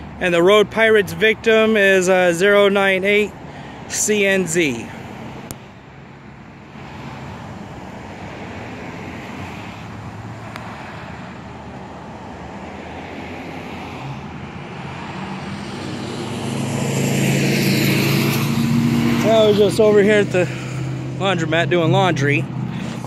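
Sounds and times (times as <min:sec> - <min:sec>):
street traffic: 0:00.0 - 0:23.0
approaching vehicle engine: 0:06.8 - 0:23.0.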